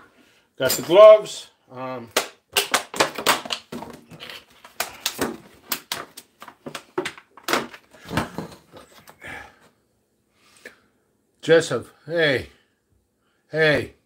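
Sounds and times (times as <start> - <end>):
gloves rustling and snapping: 2.1 - 9.2.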